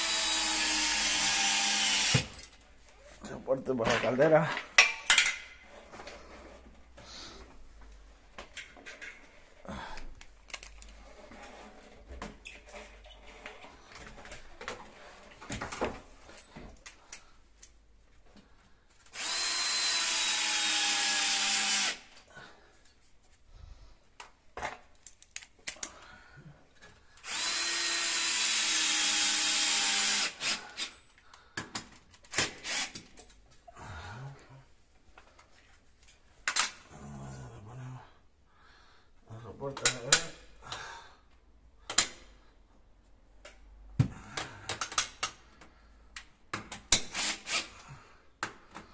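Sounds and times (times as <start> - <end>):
cordless drill whine: 0.0 - 2.3, 19.1 - 22.0, 27.2 - 30.9.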